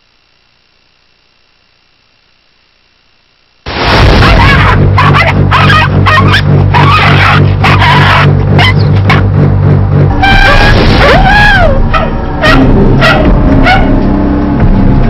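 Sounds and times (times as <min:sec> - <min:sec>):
steady low hum: 0:00.0 - 0:15.0
music: 0:04.0 - 0:15.0
dogs barking and yelping: 0:04.2 - 0:09.3, 0:10.4 - 0:14.0.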